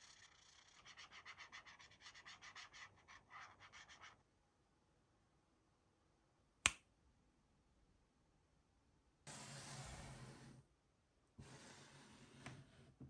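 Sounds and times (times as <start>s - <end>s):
marker scratching on paper: 0.0s - 4.2s.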